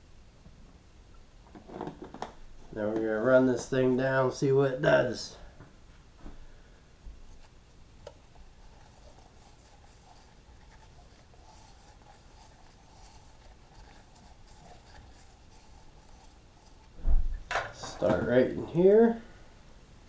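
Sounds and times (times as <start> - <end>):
gloved hand rubbing metal: 8.2 - 17.0.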